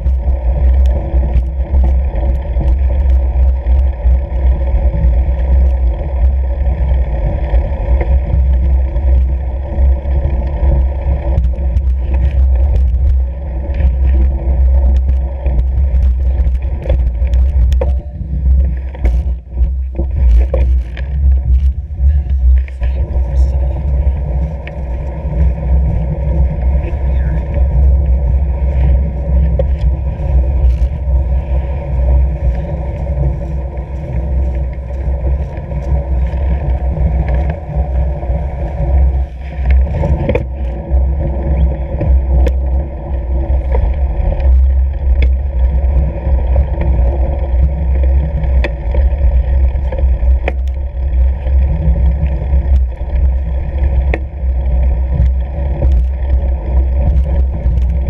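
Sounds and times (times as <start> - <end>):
clicks and knocks from bumps: 0.0 - 6.4, 7.5 - 25.5, 38.9 - 58.0
bike rumbling over snow: 0.0 - 58.0.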